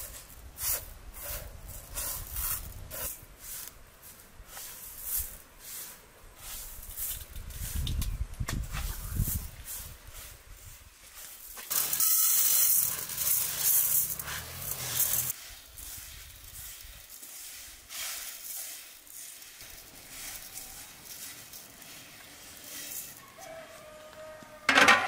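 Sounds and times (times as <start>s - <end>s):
rice grains pouring into bowl: 11.7s - 23.2s.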